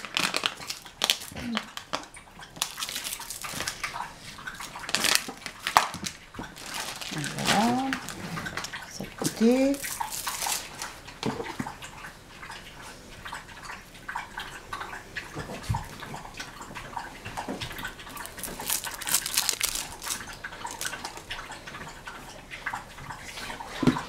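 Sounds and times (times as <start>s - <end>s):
plastic wrapping crackling: 0.0s - 1.9s, 2.6s - 3.8s, 4.6s - 10.8s, 18.1s - 21.2s.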